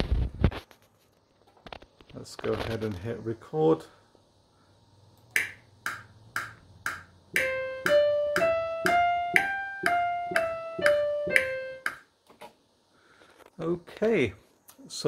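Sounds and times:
metronome clicking: 5.3s - 12.1s
digital keyboard playing a scale: 7.4s - 12.0s.

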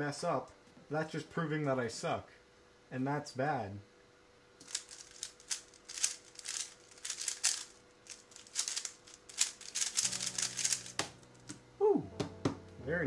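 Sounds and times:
plastic cube layers clicking: 4.6s - 11.1s.

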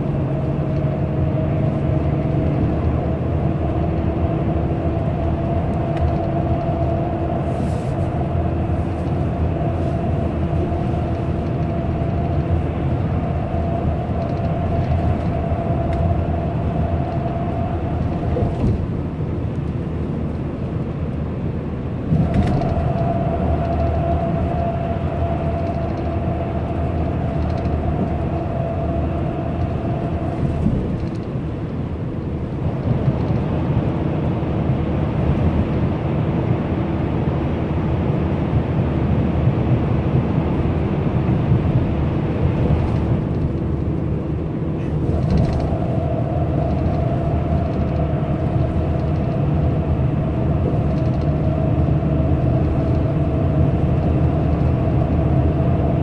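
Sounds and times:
bus engine and road rumble: 0.0s - 56.0s
thin whine: 22.1s - 32.1s, 41.1s - 56.0s.

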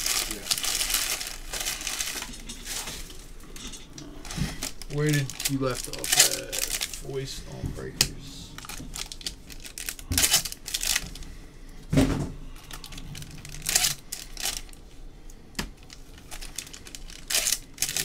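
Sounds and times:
foil wrappers tearing and crinkling: 0.0s - 3.2s, 4.2s - 7.3s, 8.6s - 11.2s, 12.6s - 14.8s, 15.8s - 18.0s.

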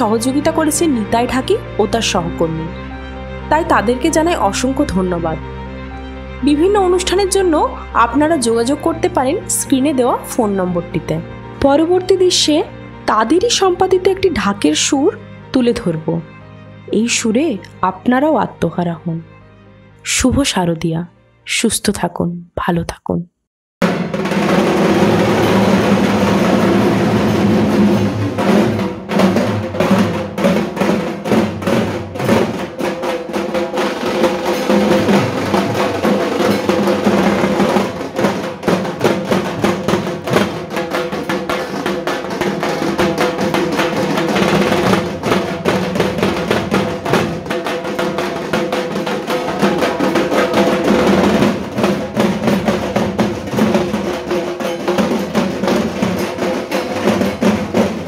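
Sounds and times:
barrel drums beaten fast: 23.8s - 58.0s.

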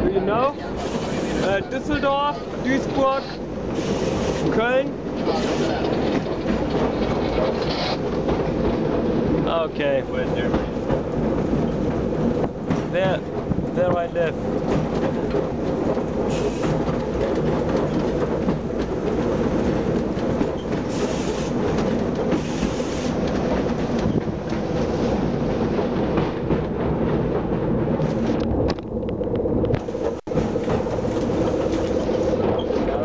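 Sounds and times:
tram wheels rumbling on rails: 0.0s - 33.0s
brief hissing: 22.4s - 23.2s.

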